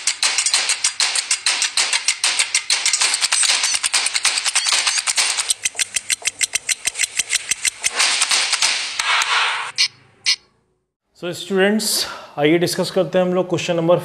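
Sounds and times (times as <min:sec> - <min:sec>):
fast rattle of clicks: 0:00.0 - 0:08.8.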